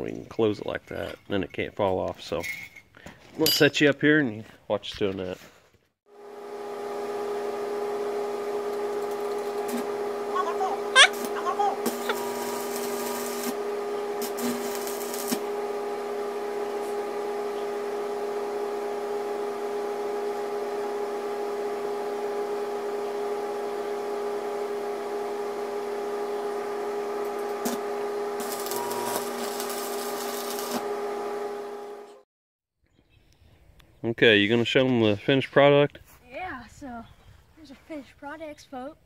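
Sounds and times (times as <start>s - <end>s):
machine hum: 6.1s - 32.2s
arc welding crackle: 8.9s - 9.9s, 10.9s - 15.6s, 27.3s - 27.8s, 28.4s - 30.9s.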